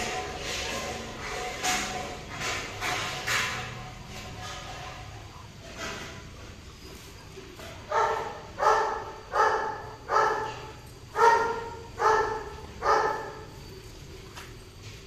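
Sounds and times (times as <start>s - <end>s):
dog barking: 7.8s - 13.6s.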